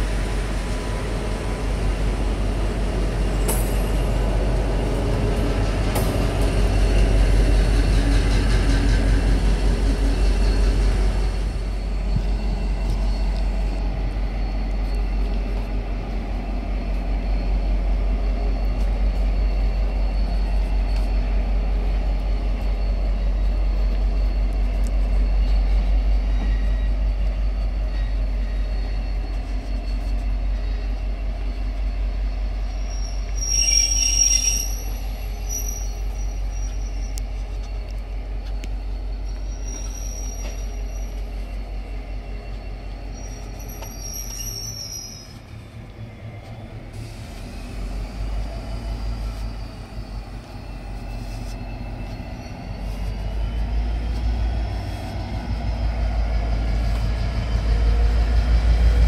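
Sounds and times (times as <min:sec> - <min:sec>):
diesel train rumbling past: 0:00.0 - 0:59.0
train wheels squealing: 0:00.0 - 0:59.0.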